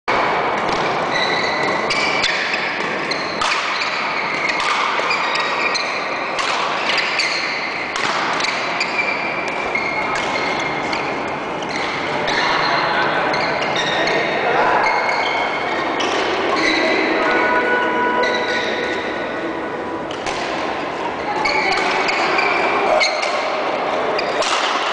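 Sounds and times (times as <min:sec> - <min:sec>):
rackets hitting shuttlecocks: 0:00.1 - 0:12.1, 0:20.1 - 0:24.9
shoes squeaking on court floor: 0:00.5 - 0:19.2, 0:21.2 - 0:24.5.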